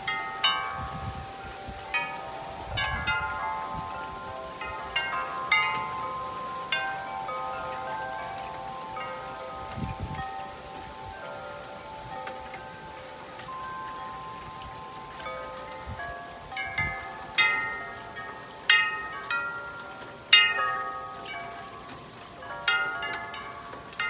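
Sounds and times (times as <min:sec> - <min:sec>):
metal wind chimes ringing: 0:00.0 - 0:24.0
rain hiss: 0:00.0 - 0:24.0
gusty storm wind: 0:00.7 - 0:04.9, 0:09.6 - 0:11.1.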